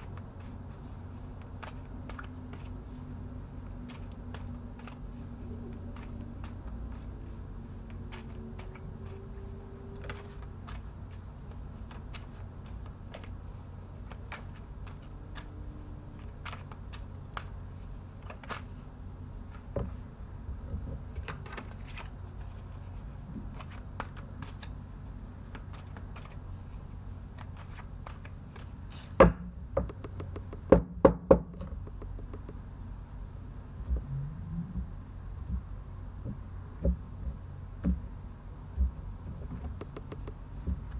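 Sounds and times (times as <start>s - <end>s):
cards being shuffled: 0.0s - 18.8s, 21.1s - 29.2s.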